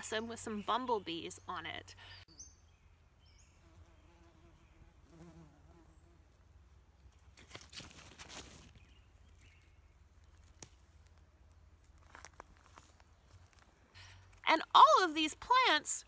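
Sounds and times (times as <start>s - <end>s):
bumblebee buzzing: 3.6s - 6.3s
rustling of plant stems: 7.2s - 14.5s.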